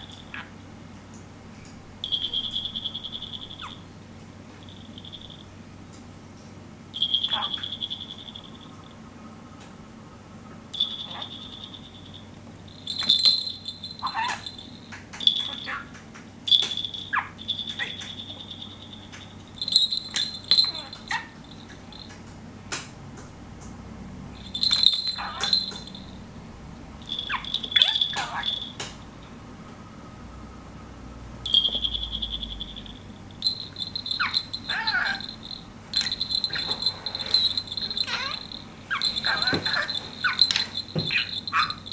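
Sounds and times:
small bell jingling: 0:00.0 - 0:00.4, 0:02.0 - 0:03.9, 0:04.5 - 0:05.5, 0:07.0 - 0:09.0, 0:10.8 - 0:22.3, 0:24.4 - 0:26.3, 0:27.0 - 0:29.2, 0:31.4 - 0:41.9
budgie chirping: 0:02.0 - 0:03.9, 0:07.0 - 0:09.0, 0:10.8 - 0:15.9, 0:16.5 - 0:22.1, 0:24.4 - 0:26.2, 0:27.0 - 0:28.8, 0:31.5 - 0:41.9.

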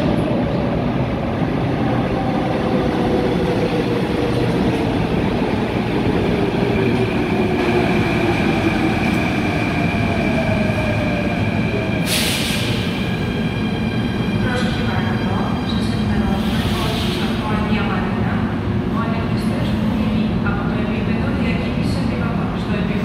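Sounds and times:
metro train braking: 0:00.0 - 0:18.6.

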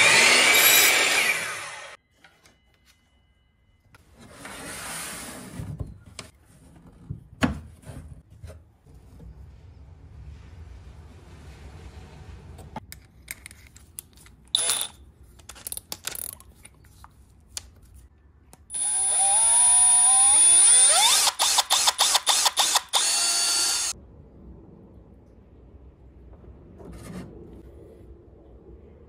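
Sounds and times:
cordless drill boring wood: 0:00.0 - 0:02.0, 0:18.7 - 0:24.0
rapid drill clicks: 0:18.8 - 0:23.9.

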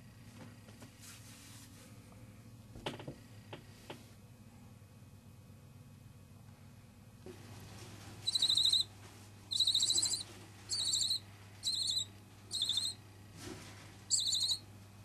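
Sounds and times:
owl chick chirruping: 0:08.2 - 0:08.9, 0:09.5 - 0:13.0, 0:14.1 - 0:14.6.

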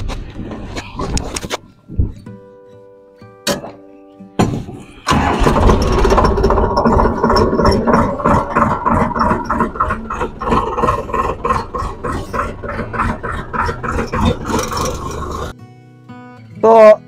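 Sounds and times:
tractor diesel engine running: 0:05.0 - 0:15.5.

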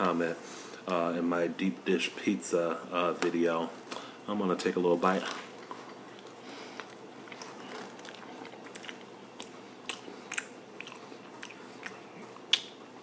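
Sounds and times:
chewing pastry: 0:05.2 - 0:12.8
mouth clicks: 0:08.7 - 0:12.8.

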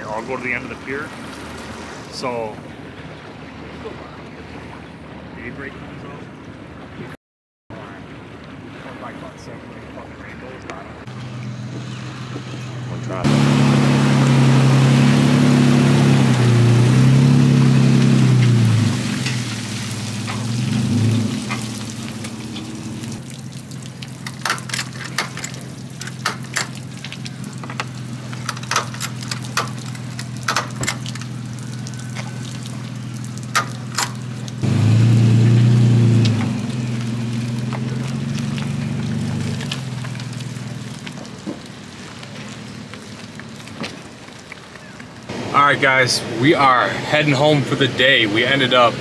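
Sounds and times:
truck engine running: 0:11.1 - 0:23.2, 0:23.9 - 0:44.2
water dripping onto concrete: 0:17.9 - 0:34.8, 0:36.1 - 0:45.3.

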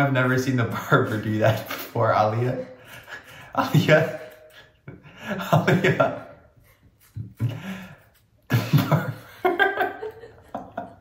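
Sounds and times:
man laughing hard: 0:04.9 - 0:06.4, 0:08.5 - 0:11.0.

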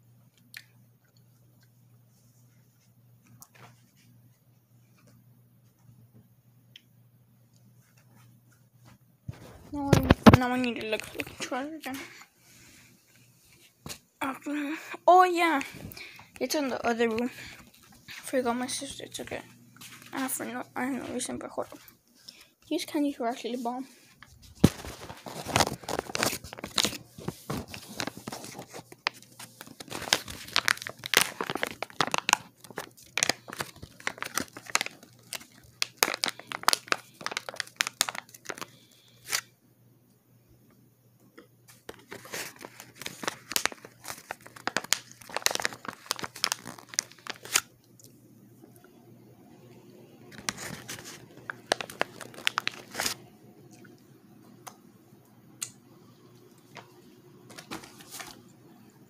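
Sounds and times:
packaging crinkling and tearing: 0:09.3 - 0:12.0, 0:24.1 - 0:39.5, 0:41.7 - 0:47.7, 0:50.3 - 0:53.2, 0:57.5 - 0:58.4.

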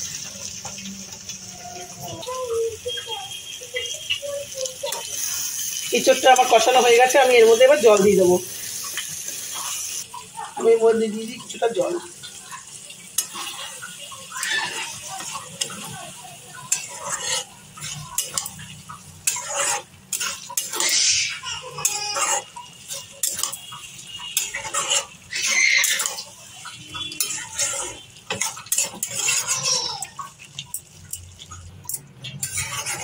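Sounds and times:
metal spatula scraping a pan: 0:13.0 - 0:33.0.

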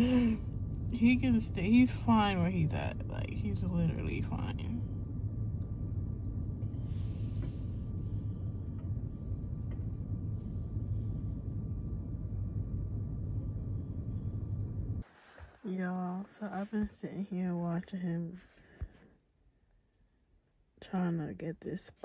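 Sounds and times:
car idling from inside: 0:00.0 - 0:15.0.

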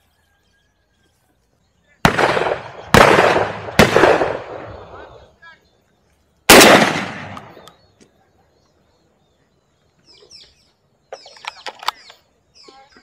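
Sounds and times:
shotgun blast: 0:02.0 - 0:05.2, 0:06.5 - 0:07.7
sharp clicks: 0:11.1 - 0:12.2.

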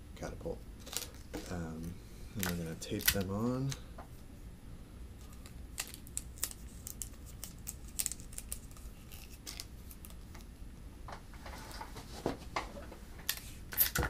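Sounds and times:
plastic straws clicking and crinkling: 0:02.4 - 0:03.8, 0:05.2 - 0:10.5.

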